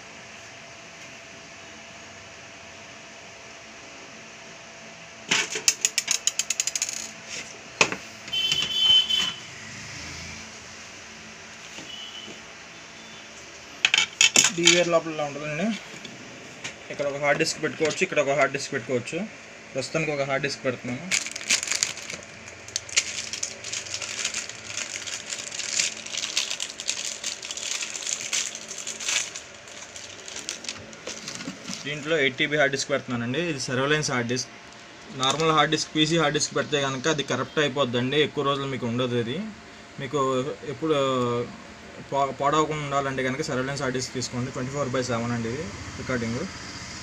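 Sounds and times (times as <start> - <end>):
plastic packaging crinkling: 21.0 - 32.2.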